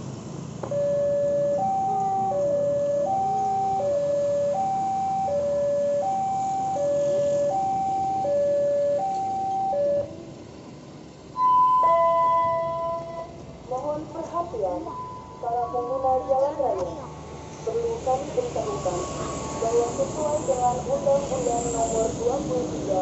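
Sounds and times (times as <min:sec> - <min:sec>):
level-crossing alarm two-note tone: 0:00.7 - 0:10.2, 0:11.3 - 0:13.4, 0:14.7 - 0:16.5, 0:18.6 - 0:20.9.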